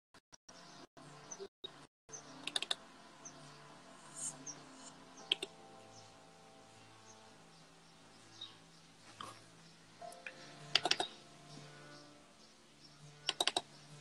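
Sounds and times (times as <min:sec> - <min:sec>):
faint music with held notes: 0:00.5 - 0:14.0
smartphone clicks and taps: 0:10.2 - 0:11.1.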